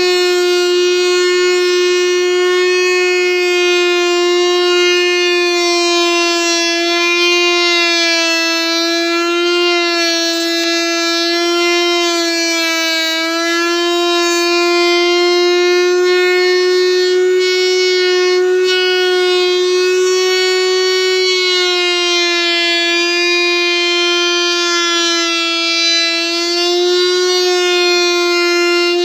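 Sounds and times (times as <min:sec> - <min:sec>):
router whining cutting wood: 0:00.0 - 0:29.0.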